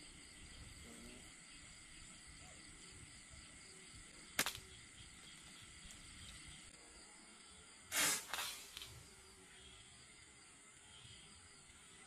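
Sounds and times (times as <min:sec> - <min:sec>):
night insects chirring: 0:00.0 - 0:12.0
sharp snap: 0:04.4 - 0:04.7.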